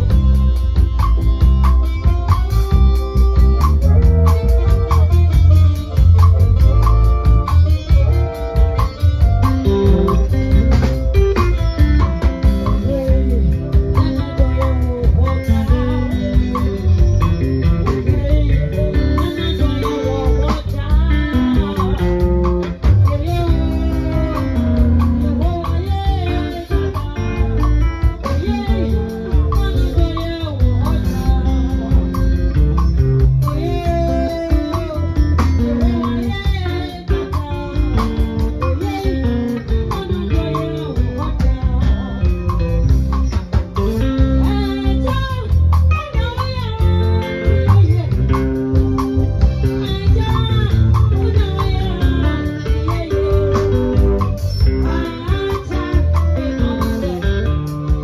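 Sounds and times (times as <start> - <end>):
bass guitar: 0.0 - 58.0
drum kit: 0.0 - 58.0
electric lead guitar: 0.0 - 58.0
woman singing: 12.4 - 42.9, 43.9 - 48.6, 49.4 - 58.0.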